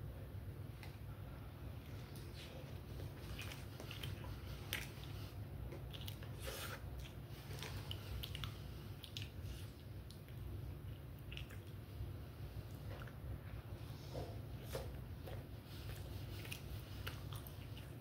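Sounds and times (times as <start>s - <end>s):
steady low hum: 0.0s - 18.0s
person chewing food: 1.8s - 11.8s, 12.6s - 18.0s
wet mouth clicks and smacks: 8.2s - 10.5s, 11.1s - 11.8s.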